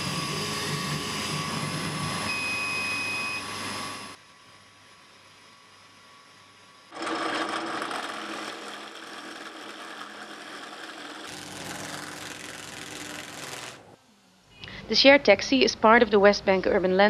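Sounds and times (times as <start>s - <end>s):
electric motor spinning sanding drum: 0.0s - 2.3s, 6.9s - 14.0s
drill press boring into wood: 6.9s - 13.9s.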